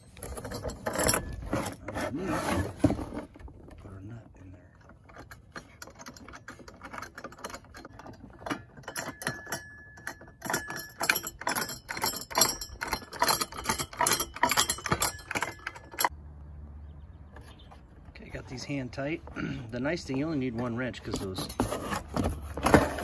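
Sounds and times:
metal nuts clicking and rattling: 0.0 - 1.8, 4.7 - 16.1.

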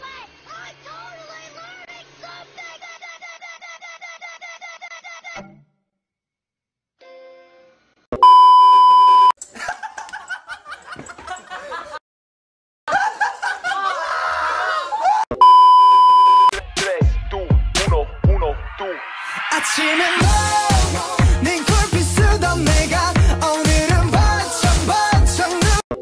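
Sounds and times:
high-pitched test-tone beeps: 8.2 - 9.3, 15.3 - 16.5
voices talking shouting and laughing: 13.6 - 15.3.

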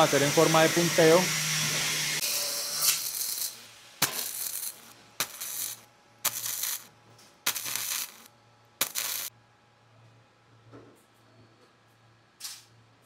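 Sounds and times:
welding arc crackle: 2.2 - 9.3.

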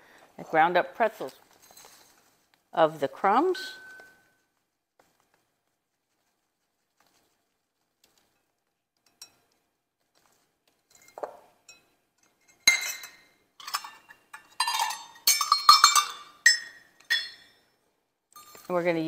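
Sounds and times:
metal measuring cups clinking: 3.4 - 4.2, 10.9 - 17.6, 18.3 - 19.0.

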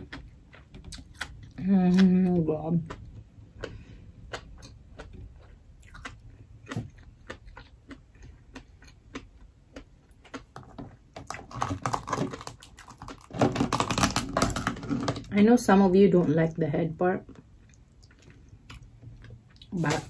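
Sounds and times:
chewing rice: 0.0 - 14.0
lobster shell cracking: 10.6 - 15.2.

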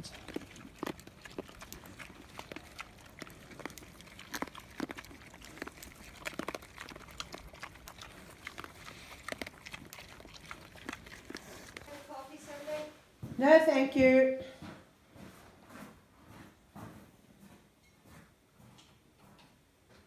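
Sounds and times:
pigs chewing and munching: 0.0 - 12.7.

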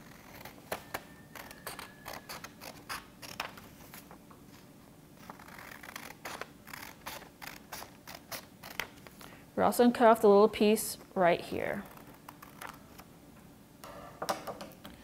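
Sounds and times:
scissors snipping paper: 0.0 - 3.5, 5.2 - 9.0
paper rustling: 1.4 - 8.0.

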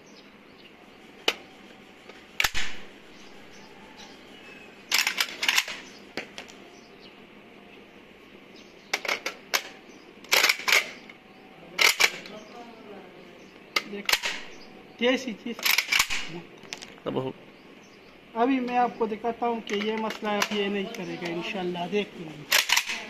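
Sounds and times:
rifle magazine and action clicking: 4.9 - 6.6, 9.0 - 11.2, 11.8 - 12.3, 13.8 - 14.4, 15.6 - 16.9, 22.5 - 23.0.

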